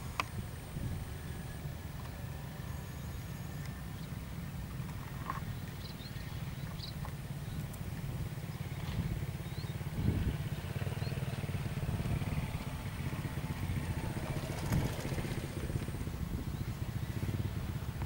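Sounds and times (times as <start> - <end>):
vehicle engine running: 0.0 - 18.0
bird chirps: 5.4 - 7.6, 9.4 - 9.8.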